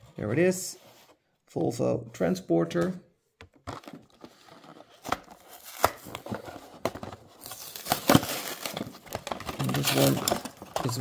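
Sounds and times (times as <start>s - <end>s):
plastic packaging crinkling: 7.3s - 11.0s.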